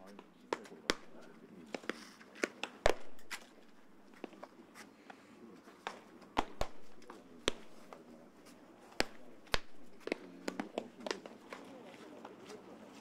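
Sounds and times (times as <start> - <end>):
baseballs smacking into mitts: 0.0 - 4.6, 5.6 - 12.6.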